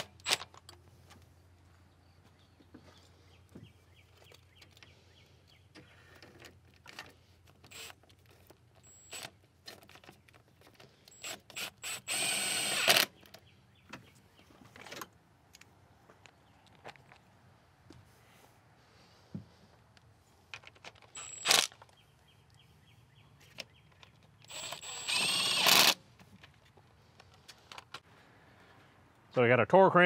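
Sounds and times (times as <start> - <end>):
power tool running bolts down: 11.1 - 13.1, 24.5 - 26.0.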